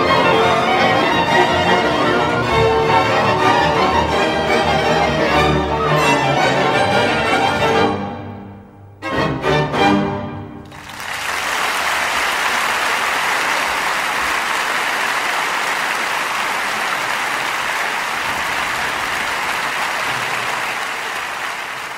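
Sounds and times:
music: 0.0 - 10.9
applause: 10.6 - 21.9.

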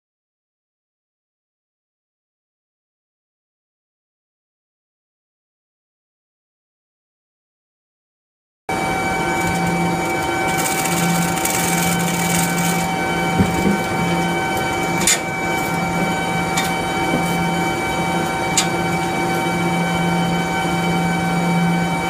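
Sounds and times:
machinery hum with whining tones: 8.7 - 22.0.

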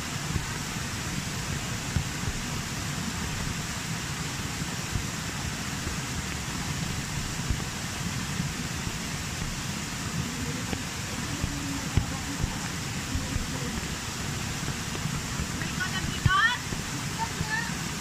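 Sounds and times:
soft low thumps: 0.0 - 17.8
falling rain: 0.0 - 18.0
waterfall rushing over rock: 0.0 - 18.0.

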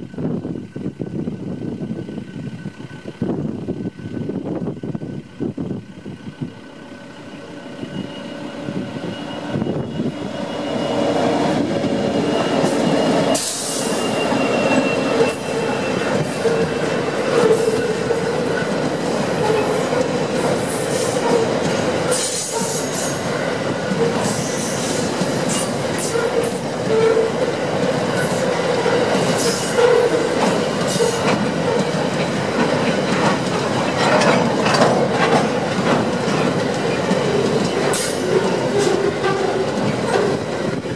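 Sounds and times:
diesel locomotives passing: 0.0 - 40.9
train wheels rumbling on rail: 0.0 - 40.9
ringing wheel squeal: 7.0 - 27.4
sharp clicks and clanks: 31.2 - 38.1.

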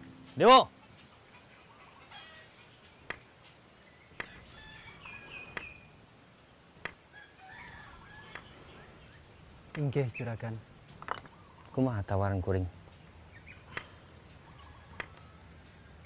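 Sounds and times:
chickens clucking: 0.7 - 5.8, 12.9 - 16.0.

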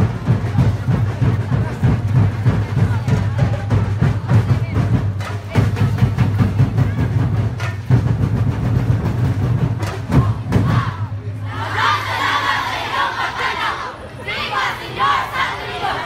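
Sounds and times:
fast drumming ensemble: 0.0 - 11.2.

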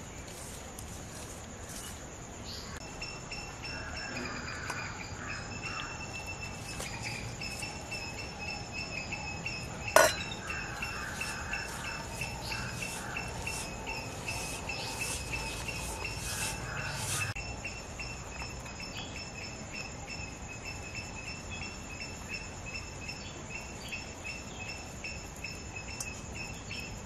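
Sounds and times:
insects chirping: 0.0 - 27.0
sharp metallic clink: 9.9 - 10.4.

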